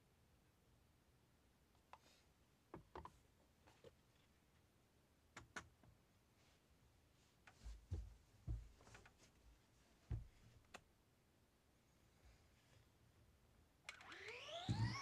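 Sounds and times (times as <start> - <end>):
soft thumps: 7.5 - 9.1, 10.1 - 10.4.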